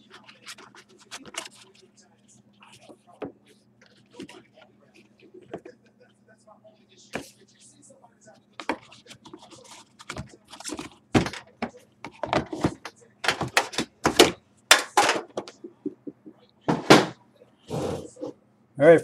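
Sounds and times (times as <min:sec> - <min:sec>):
trading cards and packaging handled: 0:00.0 - 0:05.7, 0:08.5 - 0:15.8.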